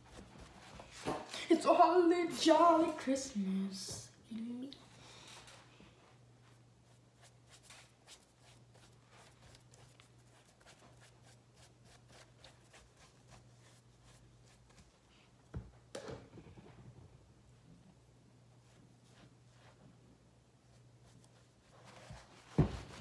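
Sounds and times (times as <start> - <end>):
paintbrush scratchy strokes: 6.4 - 14.9.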